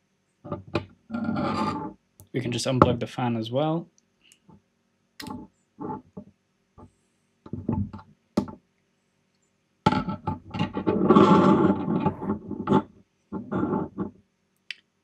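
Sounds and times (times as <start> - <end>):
parts scraping across desk: 0.5 - 1.9, 9.9 - 14.2.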